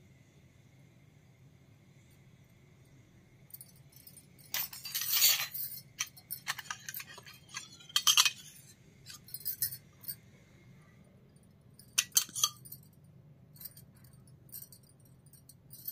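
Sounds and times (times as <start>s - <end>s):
metal toy plates clinking: 3.6s - 10.2s, 11.8s - 13.0s, 13.6s - 15.9s.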